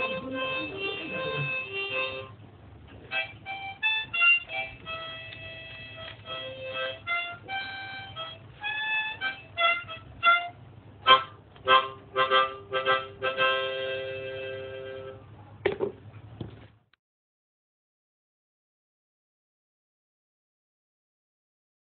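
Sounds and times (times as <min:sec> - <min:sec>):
harmonica playing: 0:00.0 - 0:02.4, 0:03.1 - 0:15.2.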